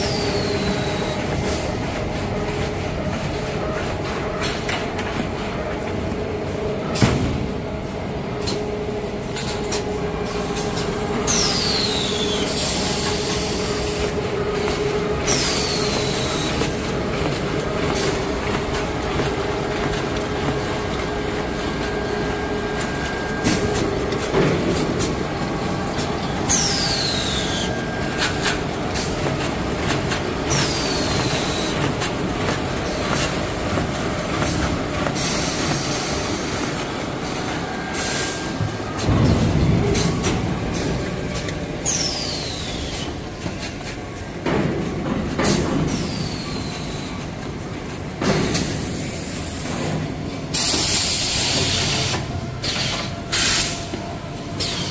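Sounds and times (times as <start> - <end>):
machine noise: 0.0 - 54.9
mechanical clacks: 8.4 - 54.9.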